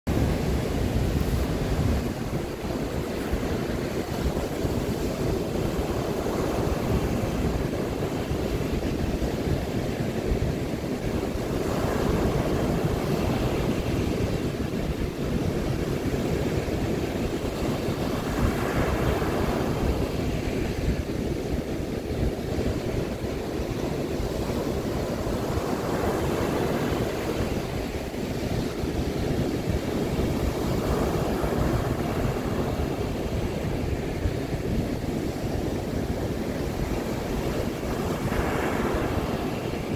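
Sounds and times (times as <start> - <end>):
waves breaking on shore: 0.1 - 39.9
wind buffeting microphone: 0.1 - 39.9.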